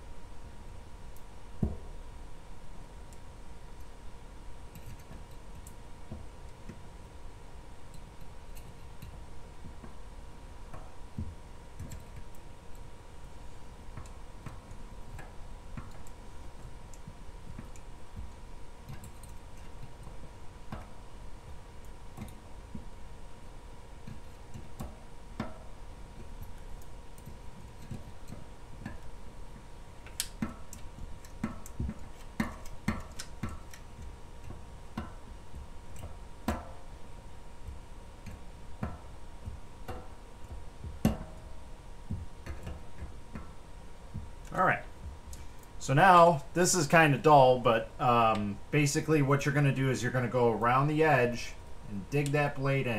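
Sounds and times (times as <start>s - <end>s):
faint steady hum: 0.0s - 52.9s
light clicks and taps: 30.0s - 36.8s.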